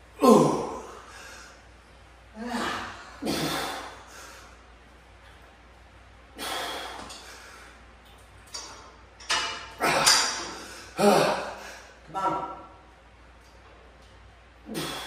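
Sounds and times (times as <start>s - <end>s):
man grunting with strain: 0.2s - 1.0s, 2.3s - 3.9s, 10.9s - 12.2s
man exhaling forcefully: 2.4s - 4.4s, 6.4s - 7.1s, 14.7s - 15.0s.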